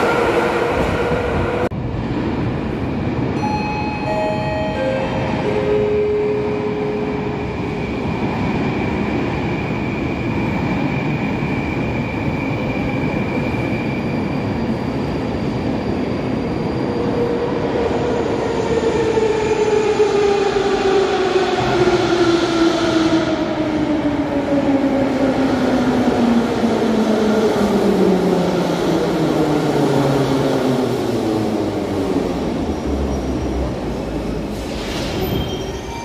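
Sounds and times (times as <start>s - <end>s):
falling train whine: 0.0s - 23.6s
metro train rumble: 0.0s - 36.0s.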